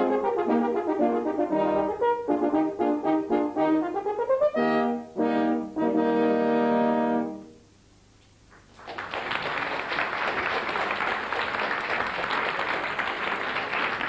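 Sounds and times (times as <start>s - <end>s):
french horn chord: 0.0s - 7.7s
audience applauding: 8.5s - 14.0s.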